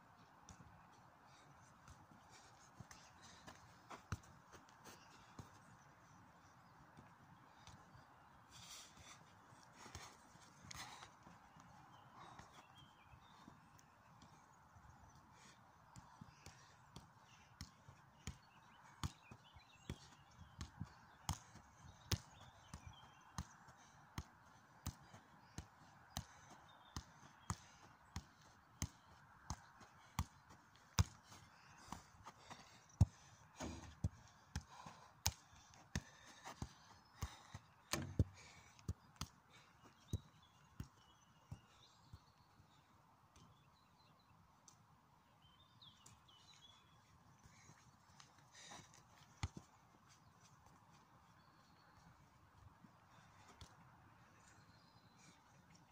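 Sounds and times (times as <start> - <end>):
football thuds from keepy-ups: 32.5 - 34.2, 36.6 - 38.6.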